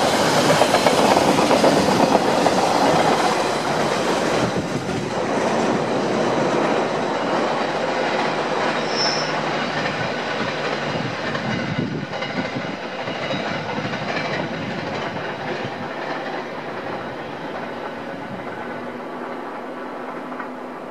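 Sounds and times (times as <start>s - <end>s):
freight train rumbling on rails: 0.0s - 20.9s
high wheel squeal: 8.6s - 10.0s.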